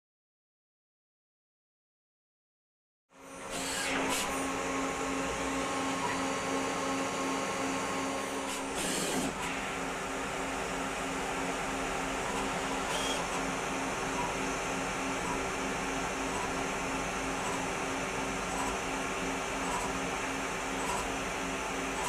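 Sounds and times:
lathe machine whirring: 0:03.2 - 0:22.0.

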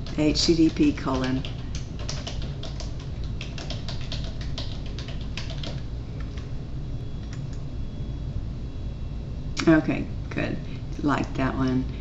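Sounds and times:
keyboard typing: 0:00.0 - 0:06.5.

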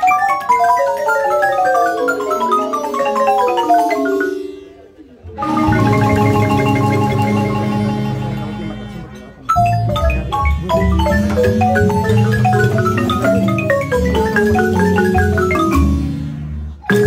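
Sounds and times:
marimba played by several musicians: 0:00.0 - 0:17.0
low bass notes: 0:05.3 - 0:16.8.

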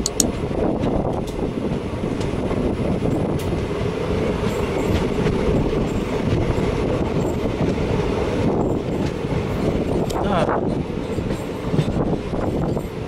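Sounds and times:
train wheels rumbling on rails: 0:00.0 - 0:13.0.

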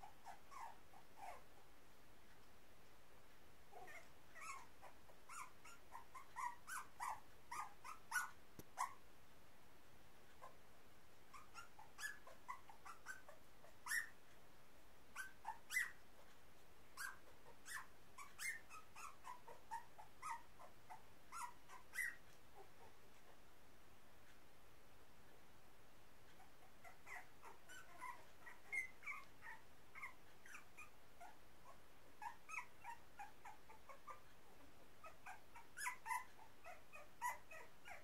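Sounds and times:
puppies squeaking and whimpering: 0:00.0 - 0:01.4, 0:03.8 - 0:09.0, 0:11.3 - 0:14.2, 0:15.2 - 0:16.0, 0:17.0 - 0:22.2, 0:26.4 - 0:31.4, 0:32.2 - 0:34.2, 0:35.0 - 0:38.0.

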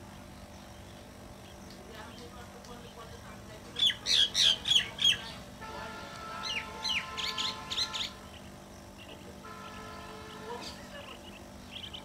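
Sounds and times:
bird calling sharp notes: 0:03.8 - 0:05.4, 0:06.0 - 0:12.0.

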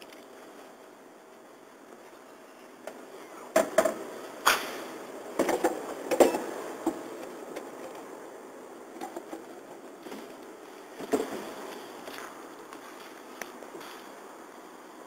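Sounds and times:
knocks and plastic clatters: 0:03.6 - 0:04.7, 0:05.4 - 0:08.1, 0:09.0 - 0:10.4, 0:11.0 - 0:11.5.

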